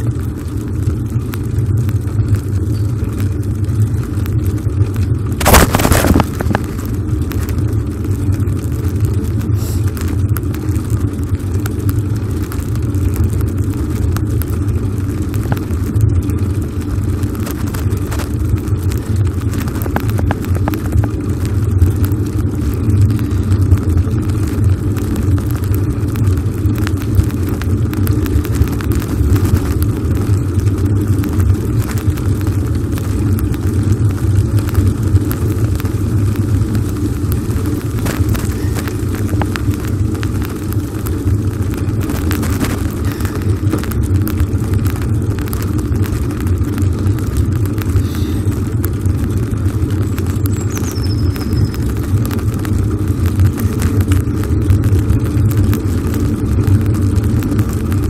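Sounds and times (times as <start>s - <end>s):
small clicks and rattles: 0.0s - 58.0s
tyres rolling on asphalt: 0.0s - 58.0s
wind buffeting microphone: 5.2s - 7.2s.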